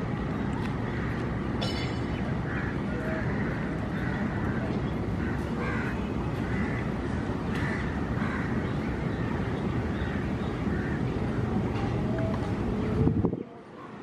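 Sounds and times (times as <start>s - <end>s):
crows cawing: 0.9s - 1.9s, 2.5s - 8.6s, 10.7s - 11.0s.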